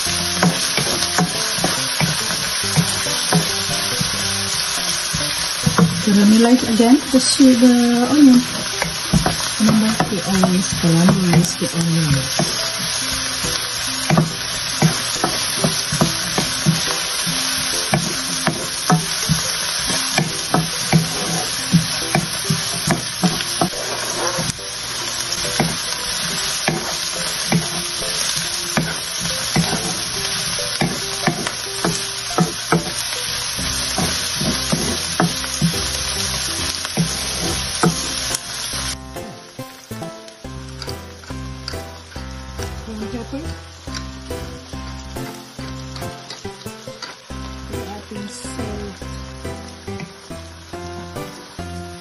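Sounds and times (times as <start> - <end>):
wooden spatula tapping a pan: 0.0 - 7.4, 8.0 - 24.6, 25.3 - 39.5
vegetables sizzling in hot oil: 0.0 - 52.0.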